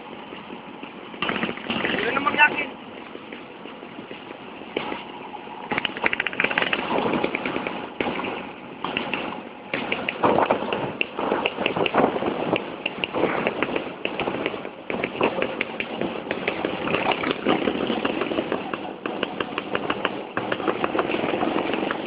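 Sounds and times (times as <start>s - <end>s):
rushing wind: 0.0s - 22.0s
scooter engines running: 0.0s - 22.0s
crackling and knocking on microphone: 5.7s - 22.0s.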